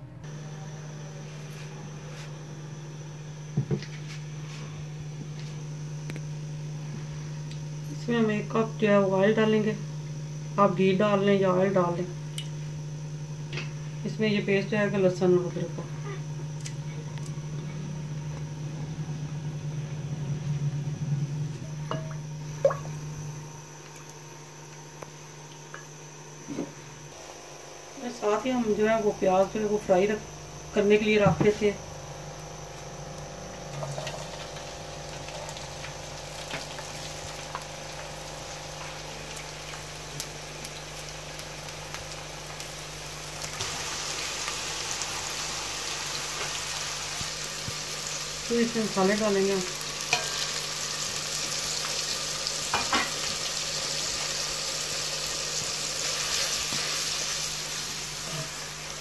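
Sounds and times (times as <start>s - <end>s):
electric cooktop hum: 0.0s - 59.0s
onions sizzling in oil: 21.4s - 59.0s.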